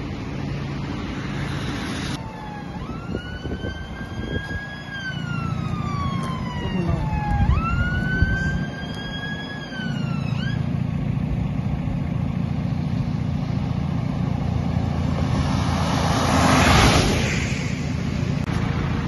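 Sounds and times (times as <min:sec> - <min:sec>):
diesel engine idling: 0:00.0 - 0:15.7
distant siren: 0:00.6 - 0:11.2
tyres hissing on wet road: 0:01.0 - 0:02.2.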